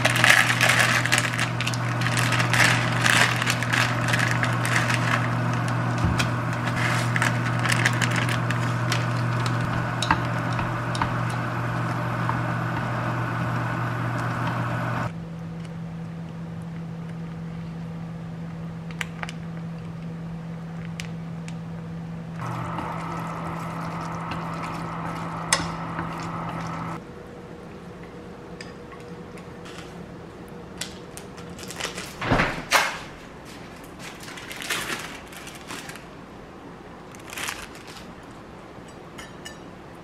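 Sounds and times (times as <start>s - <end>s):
steady hum: 0.0s - 17.0s, 21.7s - 29.6s.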